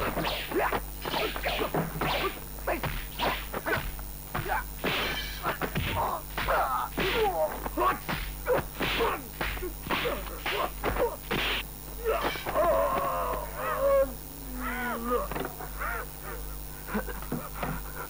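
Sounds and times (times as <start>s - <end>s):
punch thwacks: 0.0s - 12.6s
fighters grunting and crying out: 0.0s - 17.9s.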